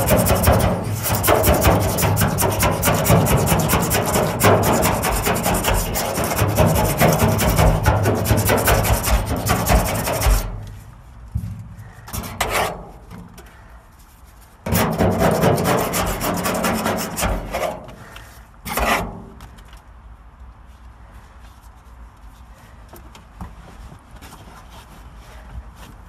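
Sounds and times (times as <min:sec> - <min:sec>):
scraper rasping on sheet metal: 0:00.0 - 0:10.7, 0:12.1 - 0:13.0, 0:14.6 - 0:18.0, 0:18.7 - 0:19.2.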